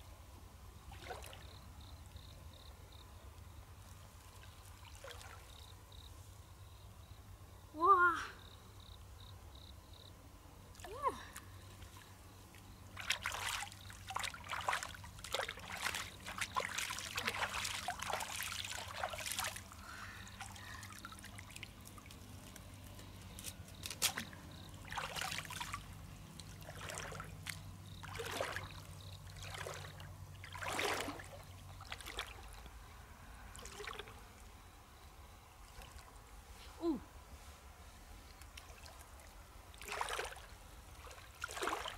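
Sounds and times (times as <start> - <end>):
stream water splashing: 0.9 - 1.6, 4.4 - 5.7, 11.7 - 22.6, 23.8 - 32.7, 33.5 - 34.5, 35.6 - 36.2, 38.4 - 41.9.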